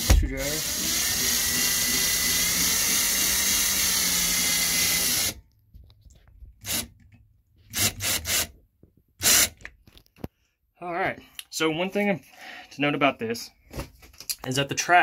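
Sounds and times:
power drill driving a screw: 0:00.0 - 0:05.4, 0:06.6 - 0:06.9, 0:07.7 - 0:08.5, 0:09.2 - 0:09.6.

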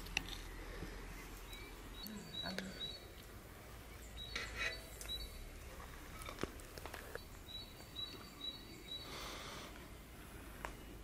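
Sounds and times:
small bird chirping: 0:01.1 - 0:05.5, 0:07.0 - 0:09.2.

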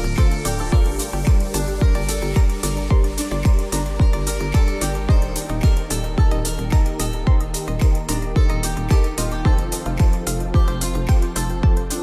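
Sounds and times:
music with kick-drum beat: 0:00.0 - 0:12.0.

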